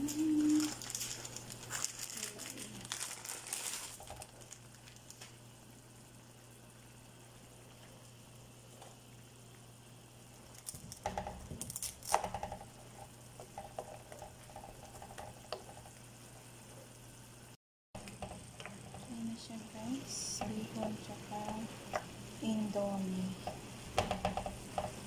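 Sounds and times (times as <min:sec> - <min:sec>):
sauce simmering in a frying pan: 0:03.9 - 0:11.6, 0:12.3 - 0:25.0
wooden spoon knocking and scraping pan: 0:23.4 - 0:25.0.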